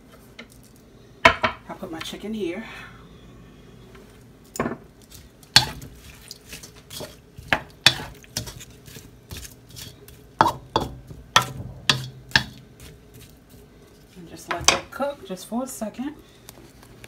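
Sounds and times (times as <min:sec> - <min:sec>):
wooden utensil scraping a wok: 0:05.1 - 0:14.5.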